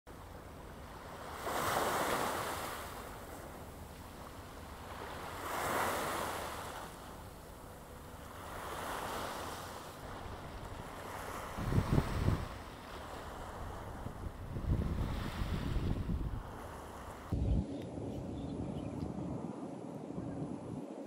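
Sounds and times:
small waves breaking on rocky shore: 0:01.0 - 0:03.4, 0:04.5 - 0:07.1
low wind rumble: 0:02.6 - 0:21.0.

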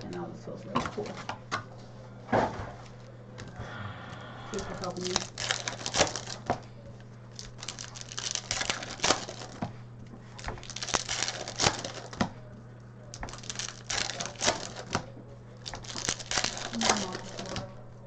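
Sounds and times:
steady low hum: 0:00.0 - 0:18.0
foil wrappers crinkling and tearing: 0:04.5 - 0:06.7, 0:07.3 - 0:12.3, 0:13.1 - 0:17.8.

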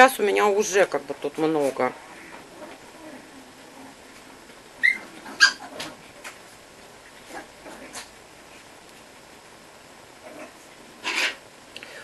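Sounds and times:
dog high-pitched squeaks: 0:04.8 - 0:05.7.

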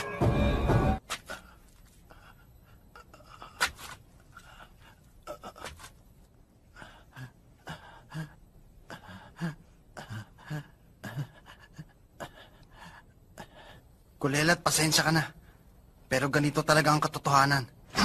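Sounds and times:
man panting heavily: 0:06.7 - 0:14.0.

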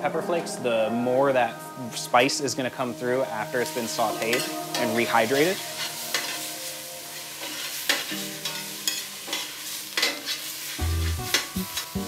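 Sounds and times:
vegetables sizzling in oil: 0:03.2 - 0:12.0.

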